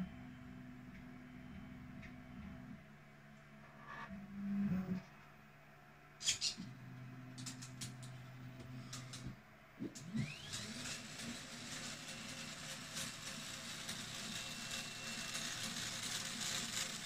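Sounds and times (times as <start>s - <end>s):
steady whir with high tone: 0.0s - 5.2s, 6.1s - 17.0s
motor whine rising: 6.3s - 11.6s.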